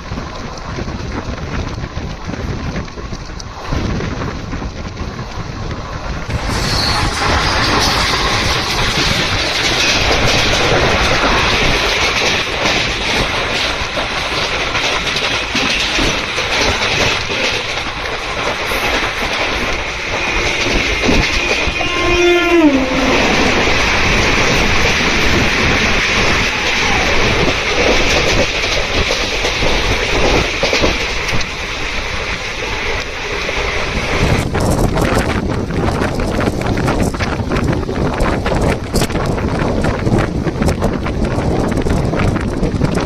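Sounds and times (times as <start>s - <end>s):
rushing air: 3.5s - 43.0s
train wheels clattering: 4.4s - 43.0s
train horn: 20.1s - 24.2s.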